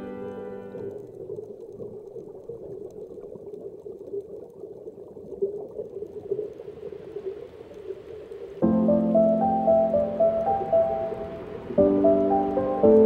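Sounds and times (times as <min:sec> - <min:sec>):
piano chord: 0:00.0 - 0:00.9, 0:08.6 - 0:13.0
soft hiss: 0:00.0 - 0:13.0
bubbling underwater noise: 0:00.6 - 0:13.0.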